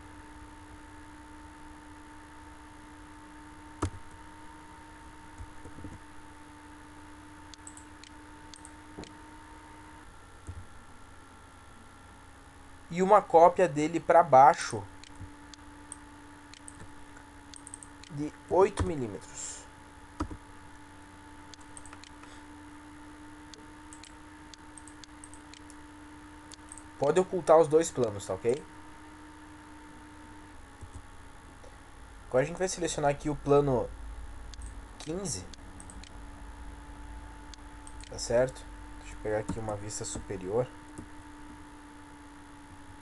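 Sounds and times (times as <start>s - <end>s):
low electrical hum: 0.0s - 43.0s
computer mouse clicking: 7.5s - 9.2s, 15.0s - 16.9s, 17.5s - 19.0s, 20.2s - 20.4s, 21.5s - 22.3s, 23.5s - 25.8s, 34.5s - 36.2s, 37.5s - 38.2s.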